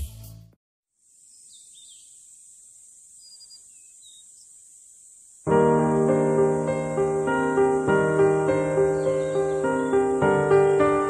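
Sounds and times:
faint high hiss: 1.0s - 11.0s
faint chirps: 1.1s - 5.4s
piano music: 5.5s - 11.0s.

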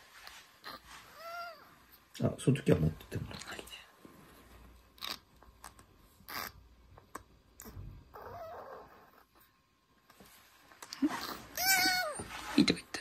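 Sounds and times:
kitten hissing: 6.2s - 6.6s, 11.0s - 12.5s
kitten raspy cry: 11.2s - 12.2s.

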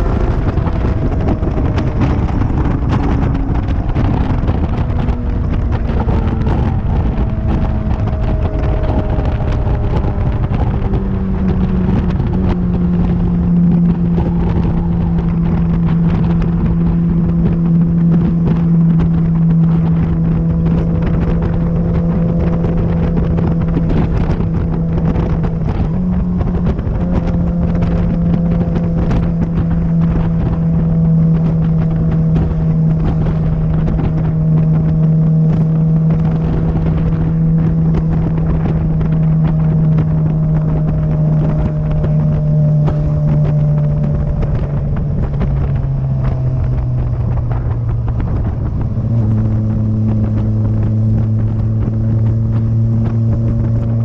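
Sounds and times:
motorcycle engine running: 0.0s - 54.0s
wind buffeting microphone: 0.0s - 54.0s.

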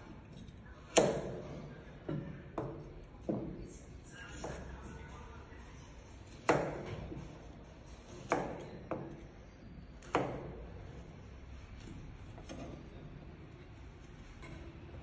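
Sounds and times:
knife chopping on plastic board: 0.9s - 1.5s, 6.4s - 7.1s, 8.1s - 9.2s, 10.0s - 10.6s.

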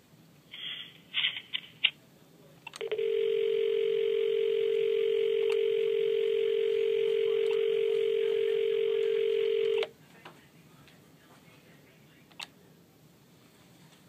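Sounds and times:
phone dial tone: 2.7s - 9.9s.

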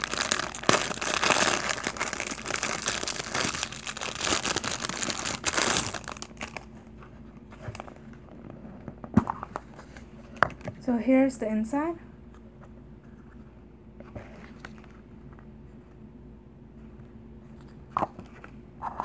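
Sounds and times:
plastic wrapping crinkling: 0.0s - 7.0s.

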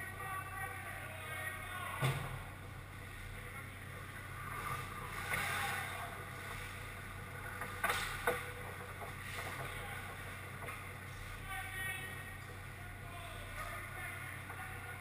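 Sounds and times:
steady low hum: 0.0s - 15.0s
skate blades scraping ice: 4.4s - 10.2s
puck knocking on boards: 7.6s - 9.8s.

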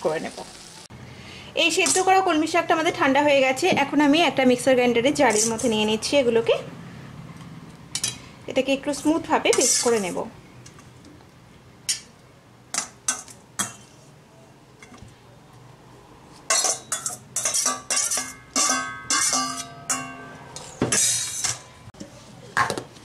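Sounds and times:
steel bowl clinking against jar: 16.5s - 20.4s.

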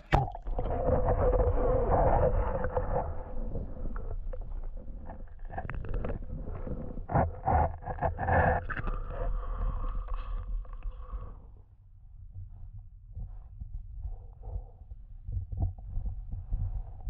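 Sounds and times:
muffled underwater sloshing: 0.0s - 11.3s.

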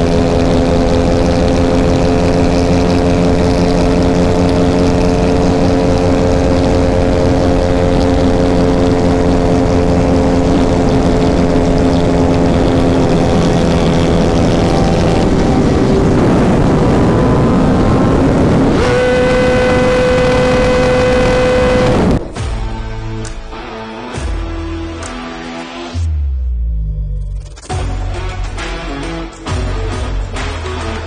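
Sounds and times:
motorcycle engines at high revs: 0.0s - 22.2s
wind rush on microphone: 0.0s - 22.4s.

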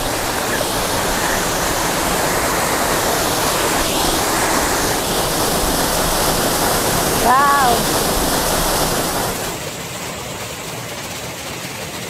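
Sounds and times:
waterfall splashing over boulders: 0.0s - 12.0s.

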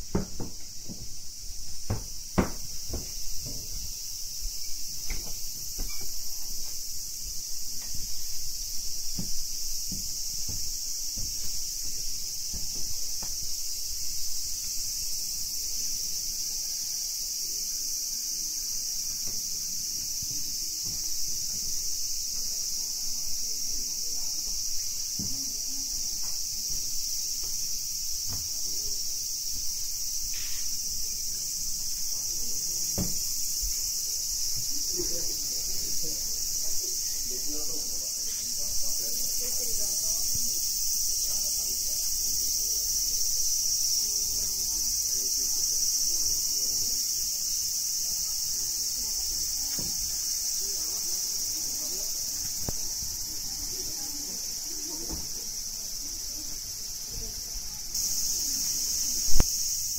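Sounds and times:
insects buzzing: 0.0s - 59.9s
faint knock: 0.1s - 1.2s, 1.8s - 3.8s, 9.1s - 11.6s, 33.0s - 33.3s.

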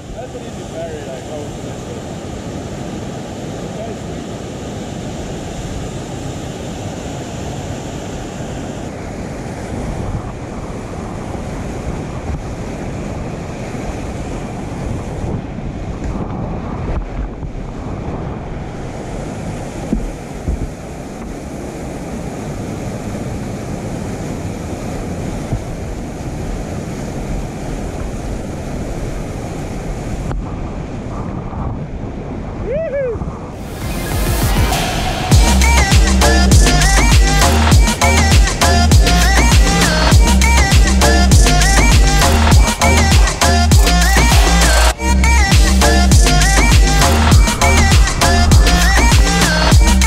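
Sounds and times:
rapids rushing water: 0.0s - 31.3s, 33.4s - 50.0s
wind buffeting microphone: 0.0s - 36.1s.

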